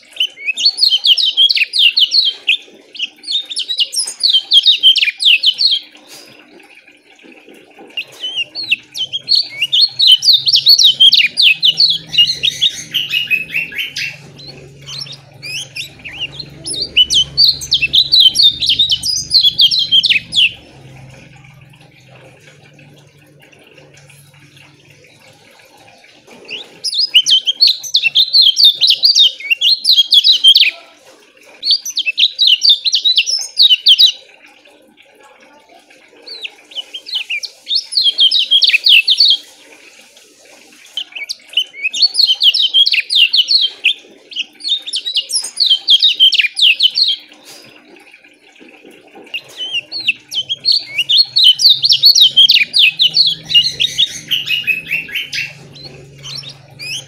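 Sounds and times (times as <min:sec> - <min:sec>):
bird chirping rapidly: 0:08.0 - 0:21.2, 0:49.3 - 0:57.0.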